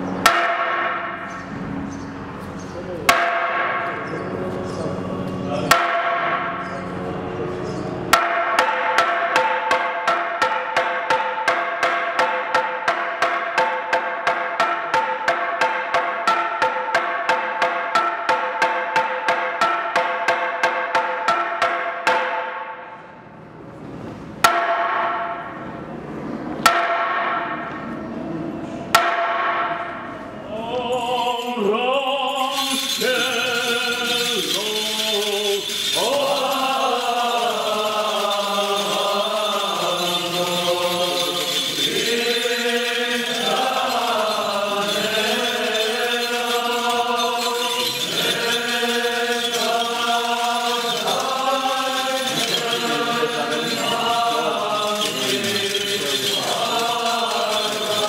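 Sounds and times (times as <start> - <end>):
wooden board strikes ringing: 0.3 - 1.5, 3.1 - 4.1, 8.1 - 22.8, 24.4 - 25.6, 26.7 - 27.9, 29.0 - 30.2, 32.4 - 49.8
men chanting together: 36.0 - 58.0.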